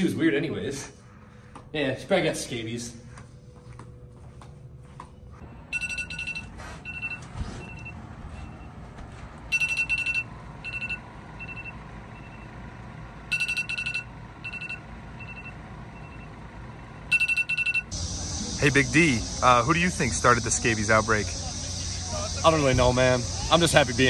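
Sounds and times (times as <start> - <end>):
phone alarm beeping: 5.6 - 8.7, 9.5 - 12.5, 13.3 - 16.4, 17.1 - 19.6.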